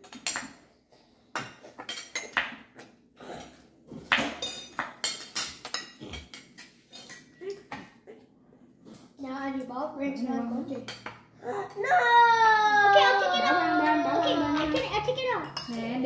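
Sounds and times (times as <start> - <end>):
cutlery clinking on plates: 0.0 - 0.7, 1.3 - 8.0.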